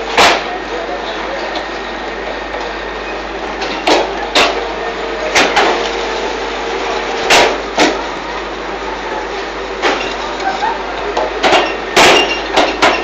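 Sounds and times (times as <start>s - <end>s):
brick machine running: 0.0s - 13.0s.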